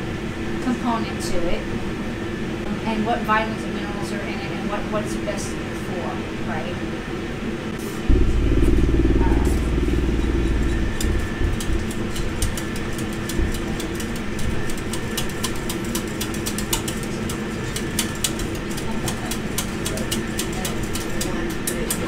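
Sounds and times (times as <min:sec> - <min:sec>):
low mechanical hum: 0:00.0 - 0:22.0
heavy low rumble: 0:08.1 - 0:13.5.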